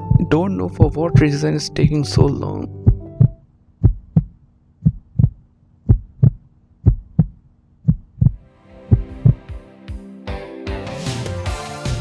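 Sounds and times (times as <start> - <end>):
music: 0.0 - 3.4, 8.4 - 12.0
heartbeat double thump: 1.8 - 9.5
faint steady hum: 2.5 - 8.5.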